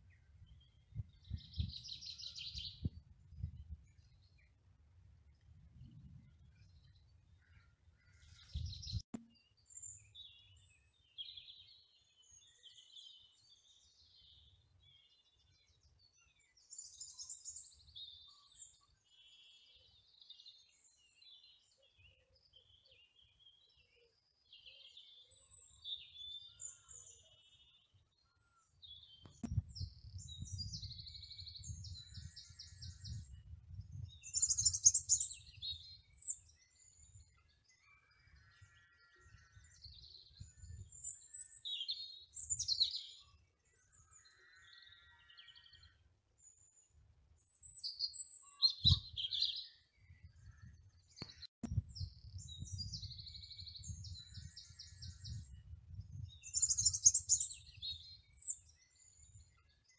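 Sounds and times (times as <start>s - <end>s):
small birds singing: 0.0s - 59.9s.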